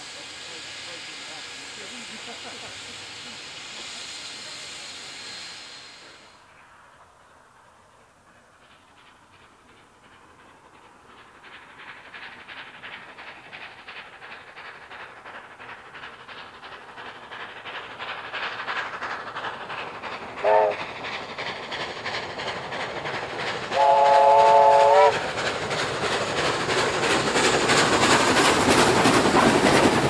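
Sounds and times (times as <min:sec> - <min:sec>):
steam locomotive exhaust beats: 0:00.0 - 0:30.0
steam whistle: 0:20.4 - 0:20.8, 0:23.7 - 0:25.2.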